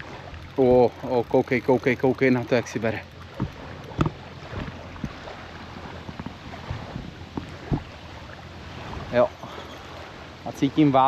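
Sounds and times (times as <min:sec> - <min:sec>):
fishing rod and reel knocks: 0:00.0 - 0:06.5.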